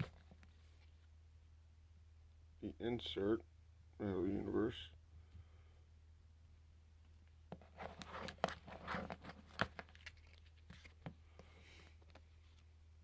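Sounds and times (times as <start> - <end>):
cards rustling and scraping: 0.0 - 1.1, 7.5 - 12.7
faint low hum: 0.0 - 13.0.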